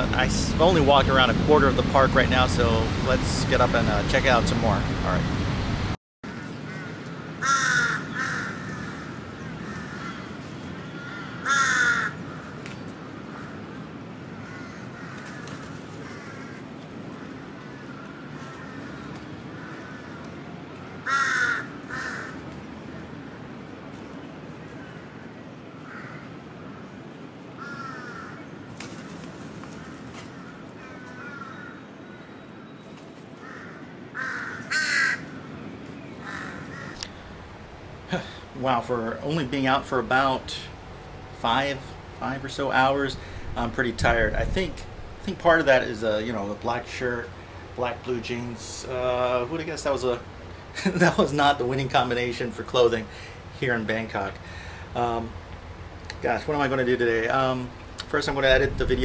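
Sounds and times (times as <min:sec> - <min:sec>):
steady low hum: 0:00.0 - 0:06.0, 0:35.2 - 0:59.0
crows cawing: 0:06.3 - 0:22.5, 0:25.8 - 0:26.8, 0:27.6 - 0:32.3, 0:33.4 - 0:35.4, 0:36.2 - 0:37.4, 0:43.2 - 0:43.5, 0:54.4 - 0:54.9.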